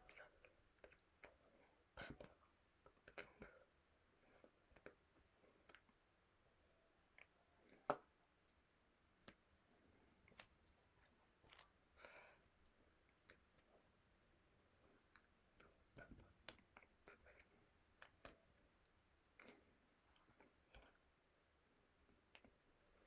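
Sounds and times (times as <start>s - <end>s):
soft clicks and taps of hands: 9.2s - 9.5s.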